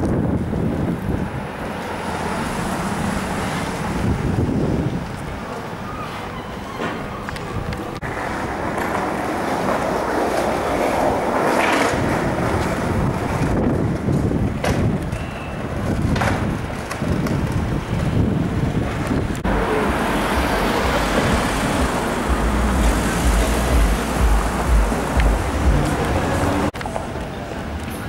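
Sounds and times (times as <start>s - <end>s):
wind buffeting microphone: 0.0s - 5.9s, 7.0s - 26.8s
street noise: 0.0s - 28.0s
deep rumble: 19.2s - 26.7s.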